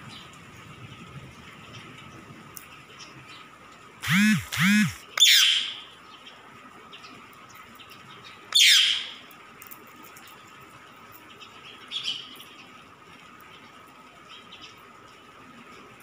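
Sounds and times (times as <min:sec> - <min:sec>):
parakeet screeching: 0:05.2 - 0:05.8, 0:08.6 - 0:09.2.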